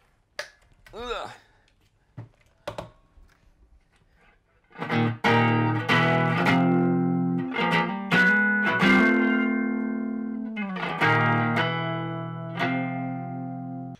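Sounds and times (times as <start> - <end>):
electric guitar chords strummed: 4.8 - 13.9.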